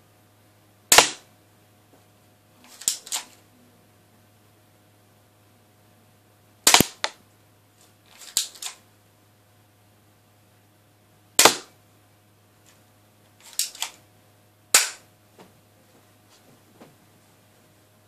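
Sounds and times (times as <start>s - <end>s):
airsoft gun shots: 0.9s - 1.3s, 6.6s - 7.2s, 11.4s - 11.8s, 14.7s - 15.0s.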